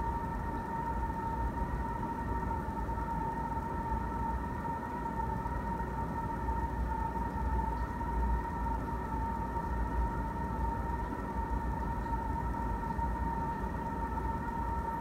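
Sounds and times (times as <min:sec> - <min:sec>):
aquarium pump whine and hum: 0:00.0 - 0:15.0.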